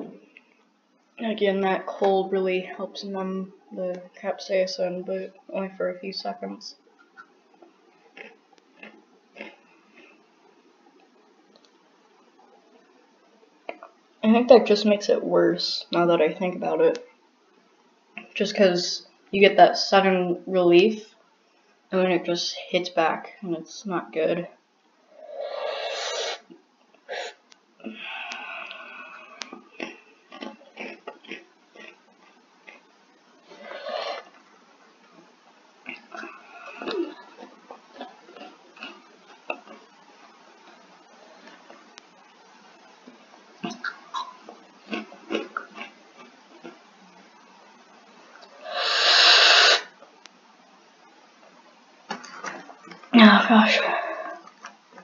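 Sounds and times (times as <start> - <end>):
snack crunch: 8.1 - 10.2, 28.3 - 34.5, 35.8 - 40.0, 43.6 - 46.9.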